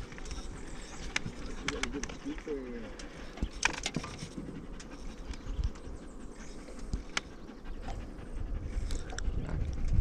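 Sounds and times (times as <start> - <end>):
dog panting: 0.0 - 10.0.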